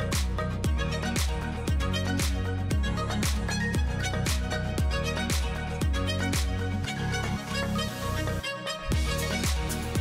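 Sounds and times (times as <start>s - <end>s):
deep kick drum: 8.9s - 10.0s.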